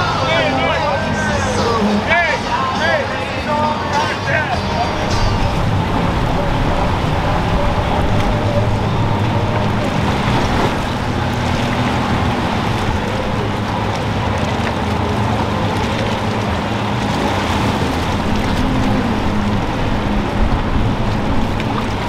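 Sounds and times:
outboard boat engines: 0.0 - 22.0
water rushing: 0.0 - 22.0
waves washing: 0.0 - 22.0
wind buffeting microphone: 4.4 - 22.0.

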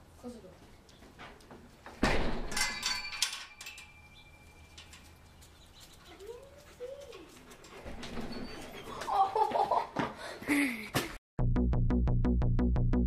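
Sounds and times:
metal gate latch clanking: 2.0 - 5.1
chain-link gate rattling: 2.0 - 6.3.

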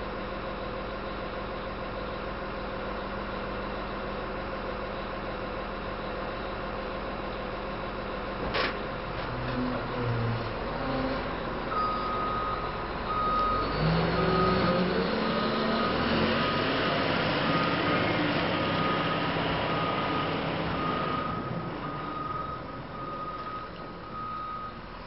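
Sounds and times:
diesel engine revving: 8.9 - 25.0
reverse alarm beeping: 11.7 - 14.7, 17.4 - 24.8.

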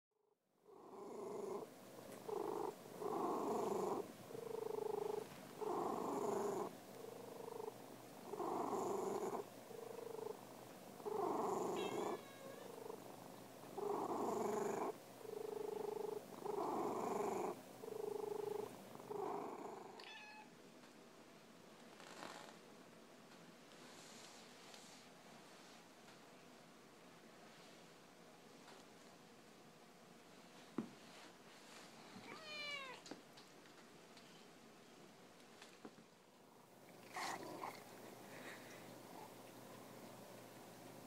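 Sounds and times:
cat purring: 0.6 - 20.0, 21.8 - 22.6, 36.6 - 41.0.

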